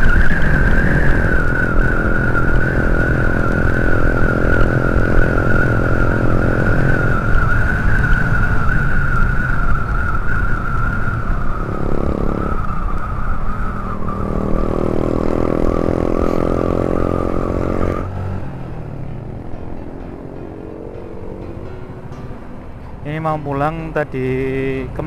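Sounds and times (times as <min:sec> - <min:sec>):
wind rush: 0:00.0 - 0:19.4.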